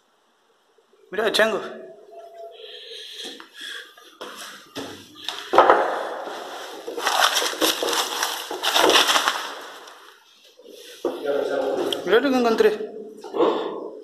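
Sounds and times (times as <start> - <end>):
rubble crunching and scraping: 5.5 - 10.2.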